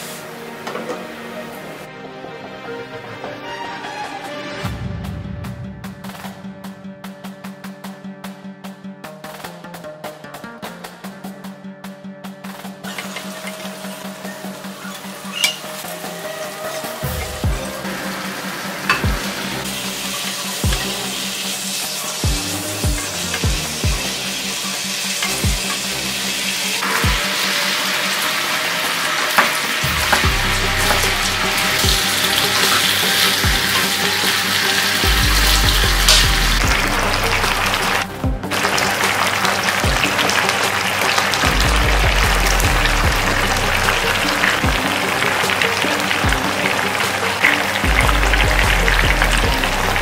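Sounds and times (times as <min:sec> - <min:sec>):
chicken sizzling in a wok: 0:00.0 - 0:01.8, 0:12.8 - 0:50.0
background music with quick beat: 0:02.0 - 0:50.0.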